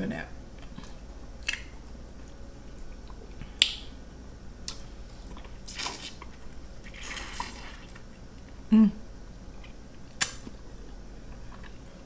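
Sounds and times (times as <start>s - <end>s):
slurping: 5.3s - 8.0s.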